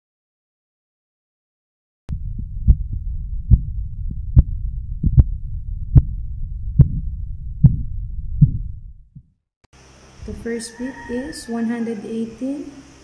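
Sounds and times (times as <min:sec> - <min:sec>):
steady low rumble: 0:02.1 - 0:09.3
pulse thumps through stethoscope: 0:02.1 - 0:09.4.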